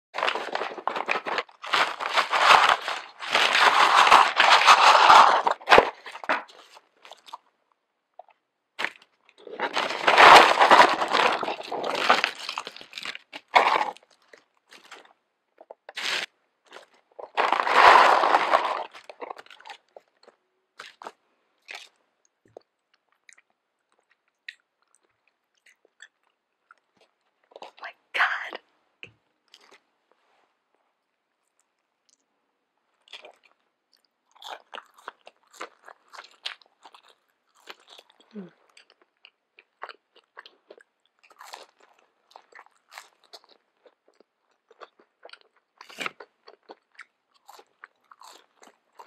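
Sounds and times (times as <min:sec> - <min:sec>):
paper bags rustling: 0:00.2 - 0:06.5, 0:09.6 - 0:13.9, 0:17.3 - 0:19.1.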